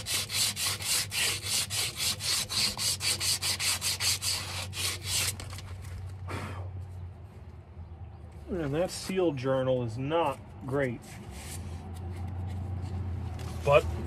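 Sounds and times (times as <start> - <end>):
abrasive cloth rasping on steel: 0.0 - 5.4.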